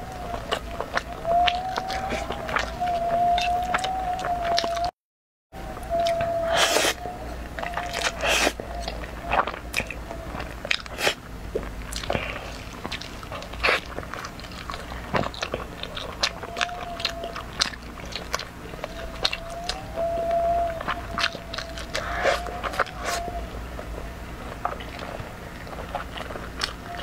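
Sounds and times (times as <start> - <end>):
wet chewing and crunchy bites: 0.0 - 4.9, 5.9 - 27.0
noodles being slurped: 10.8 - 11.2.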